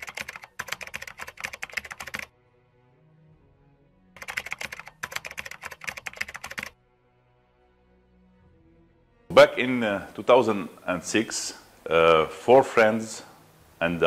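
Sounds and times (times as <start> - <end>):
keyboard typing clicks: 0.0 - 2.3, 4.2 - 6.7
soft background music: 0.0 - 14.0.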